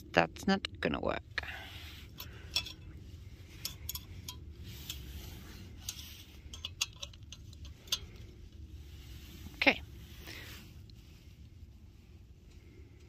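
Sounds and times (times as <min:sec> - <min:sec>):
metal pot handles clicking: 0:02.2 - 0:02.9, 0:03.6 - 0:05.0, 0:05.8 - 0:08.2.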